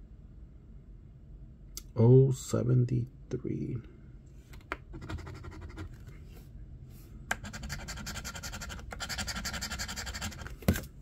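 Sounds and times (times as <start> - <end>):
coin scraping scratch card: 5.0 - 5.9, 7.3 - 10.5.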